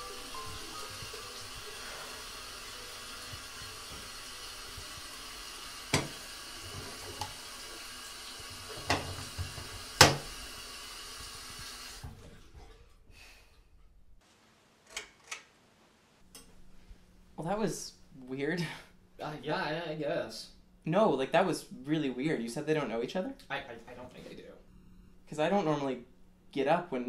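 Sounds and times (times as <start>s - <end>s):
faucet running into sink: 0.0s - 12.2s.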